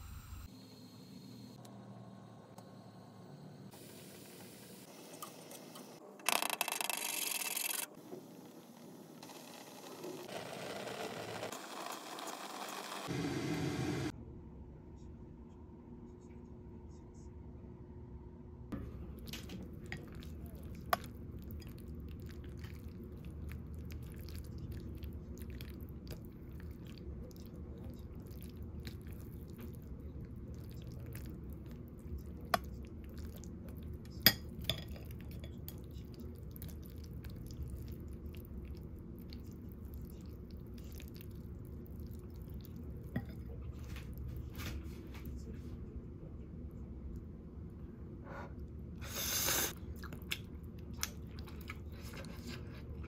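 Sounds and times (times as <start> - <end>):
low room hum: 13.1 - 53.0
utensils clinking on ceramic bowl: 34.2 - 35.7.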